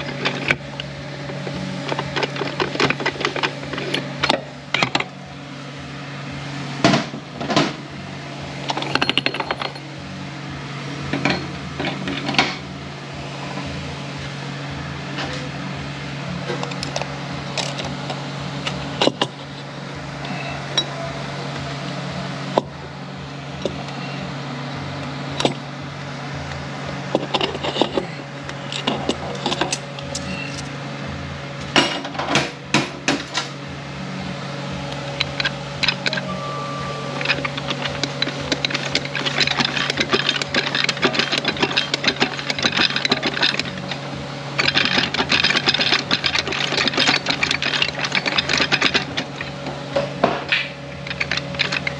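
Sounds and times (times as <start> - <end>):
low shop hum: 0.0 - 51.9
metal gear parts clinking: 1.3 - 5.1, 8.6 - 9.9, 16.5 - 19.6, 27.1 - 30.7, 35.1 - 51.9
steel on steel rattle: 8.6 - 9.9, 27.1 - 30.7, 35.0 - 51.9.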